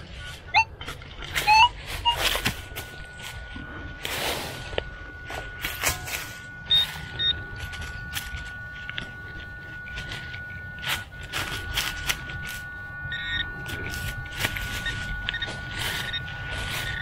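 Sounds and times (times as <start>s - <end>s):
faint steady tone: 0.0s - 17.0s
hands scraping soil and leaves: 0.0s - 17.0s
metal detector beeping: 0.0s - 17.0s.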